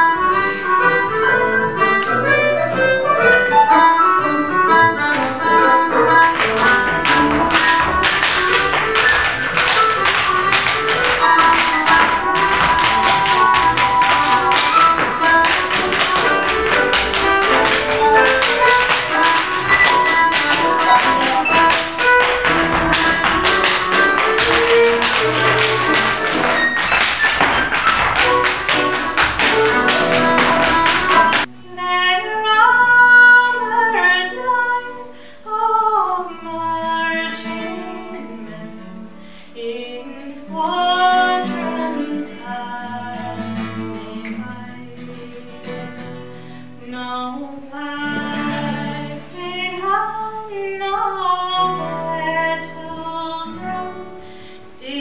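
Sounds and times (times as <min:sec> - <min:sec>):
lively dance music: 0:00.0 - 0:31.5
acoustic guitar: 0:00.0 - 0:55.0
dance shoes tapping rapidly: 0:00.8 - 0:31.5
woman singing: 0:03.8 - 0:26.6, 0:28.5 - 0:45.9, 0:46.8 - 0:54.2, 0:54.8 - 0:55.0.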